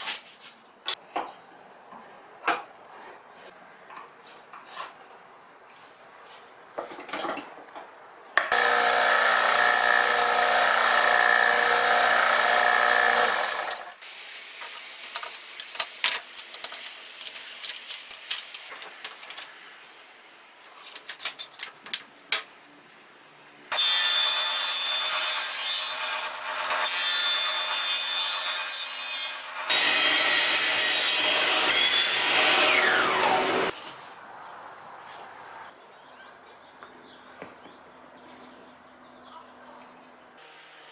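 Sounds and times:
wooden offcuts clattering on metal: 0:06.8 - 0:08.8
table saw cutting wood: 0:08.5 - 0:14.0, 0:23.7 - 0:33.7.

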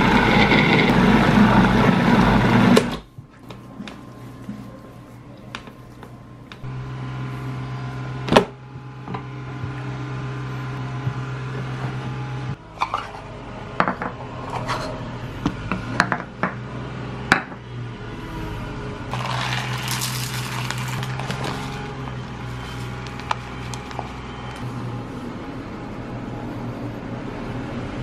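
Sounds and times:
food processor motor humming: 0:00.0 - 0:03.0, 0:19.1 - 0:24.6.

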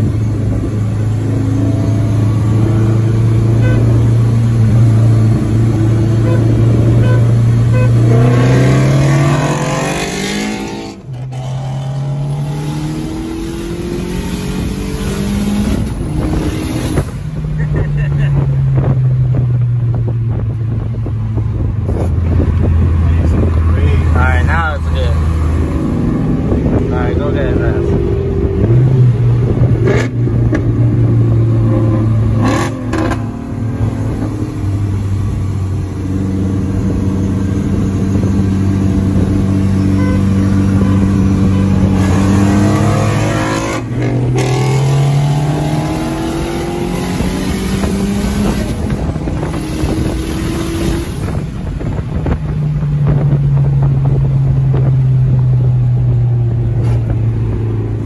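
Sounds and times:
car engine revving hard: 0:00.0 - 0:17.2, 0:23.0 - 0:52.3.

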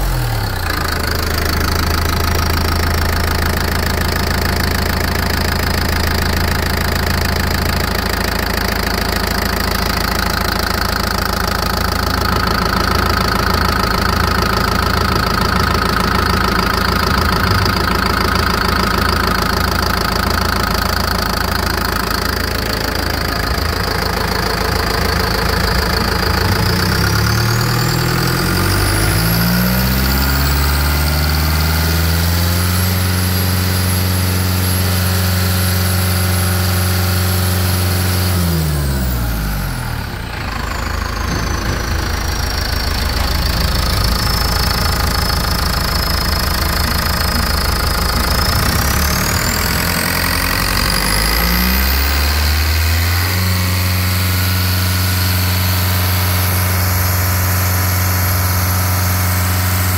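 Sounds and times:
diesel engine idling: 0:00.0 - 0:59.9
high whine: 0:16.4 - 0:31.1, 0:39.6 - 0:59.9.

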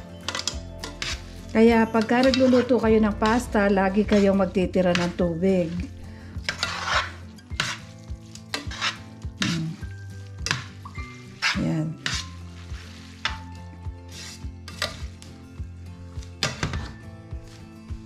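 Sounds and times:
tongs clinking and scraping pan: 0:00.0 - 0:15.4, 0:16.1 - 0:17.6
light sizzle: 0:00.2 - 0:15.5
pasta swishing: 0:05.0 - 0:09.8, 0:10.5 - 0:15.2.

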